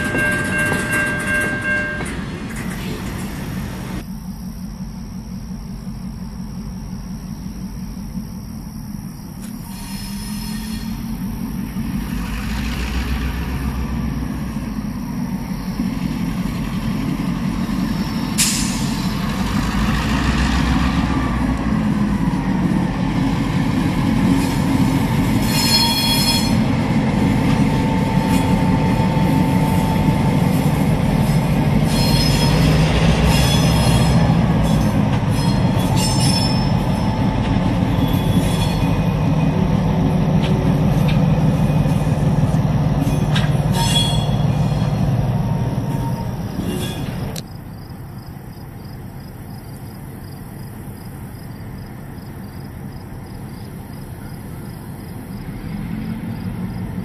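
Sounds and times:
wheel squeals on rails: 0.0 - 4.0, 9.4 - 11.2, 24.4 - 26.8, 27.4 - 39.6, 43.0 - 47.4
diesel locomotive engine rumble: 0.0 - 57.0
insects chirping: 2.0 - 57.0.

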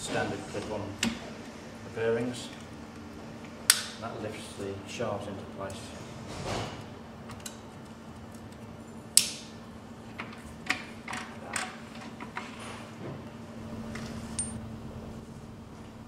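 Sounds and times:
faint steady hum: 6.9 - 16.0.

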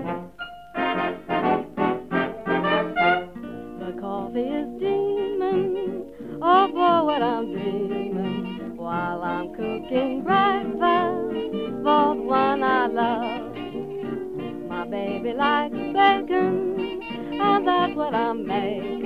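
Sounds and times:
plucked guitar chords: 0.0 - 19.0
sliding wavering melody line: 6.7 - 17.8.

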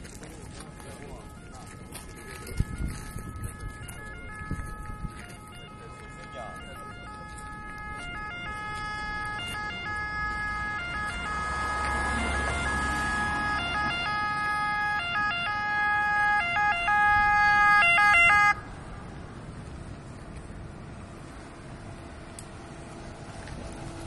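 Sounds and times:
two-tone ambulance siren: 0.0 - 18.8.

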